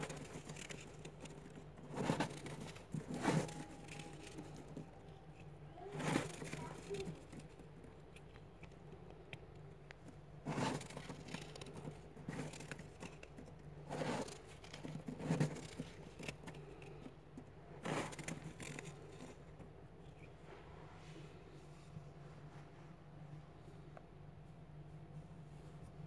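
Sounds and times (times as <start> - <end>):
hand crushing freezer frost: 0.0 - 20.2.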